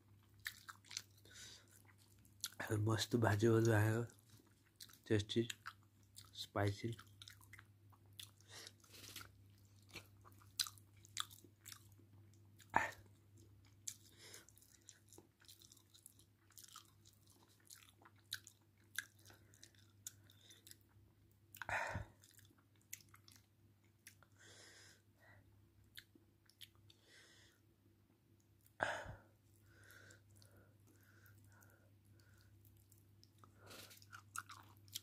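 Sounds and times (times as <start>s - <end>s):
low steady hum: 0.0s - 35.0s.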